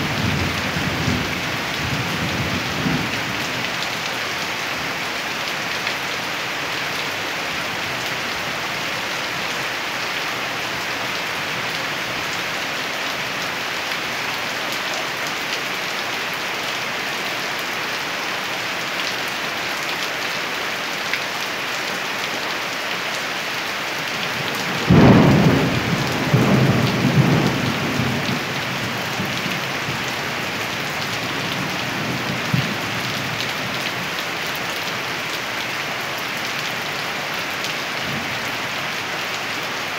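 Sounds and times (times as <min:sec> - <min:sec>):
steady rain: 0:00.0 - 0:39.9
loud thunderclap rumbling: 0:24.7 - 0:29.3.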